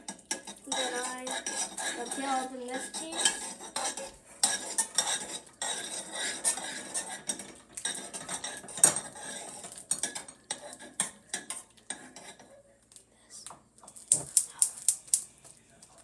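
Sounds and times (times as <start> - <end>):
spoon clanking against pot: 0.0 - 12.5
metal spoon stirring in saucepan: 0.0 - 12.7.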